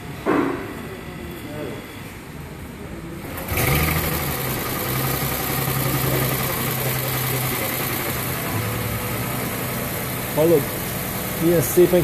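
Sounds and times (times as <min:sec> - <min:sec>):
car engine starting and idling: 0:03.2 - 0:12.0.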